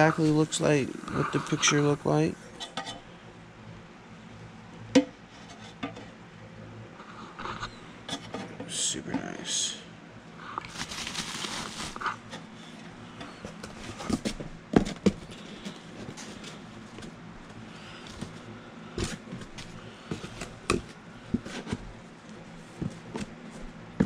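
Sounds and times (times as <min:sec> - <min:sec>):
plastic packaging rustling: 0:10.6 - 0:12.3.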